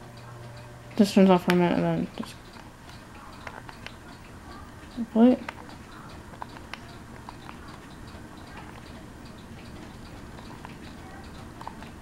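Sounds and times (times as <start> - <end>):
ceiling fan humming and ticking: 0.0 - 12.0
sharp clicks: 2.4 - 12.0.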